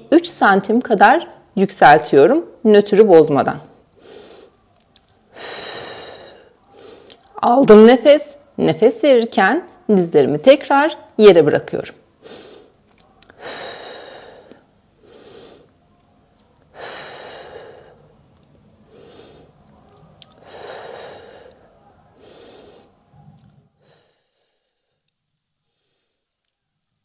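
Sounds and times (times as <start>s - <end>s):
woman breathing audibly: 4.0s - 4.6s, 5.3s - 7.3s, 12.2s - 15.8s, 16.6s - 26.6s.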